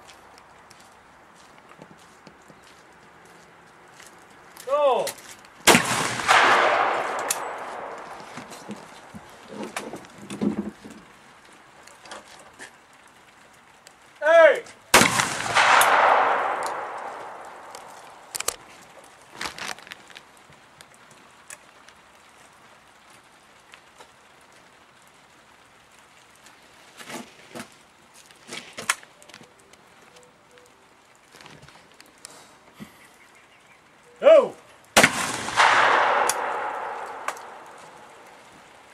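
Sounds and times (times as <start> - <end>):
person shouting: 4.7 - 5.1, 14.2 - 14.6, 34.2 - 34.6
shotgun shot with echo: 5.7 - 8.9, 15.0 - 18.3, 35.0 - 38.3.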